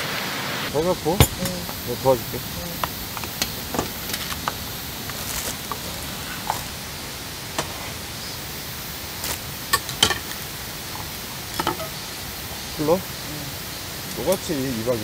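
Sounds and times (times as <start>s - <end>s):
steady hiss: 0.0s - 15.0s
dishes and utensils clinking: 1.1s - 4.6s, 9.7s - 10.4s, 11.5s - 12.0s.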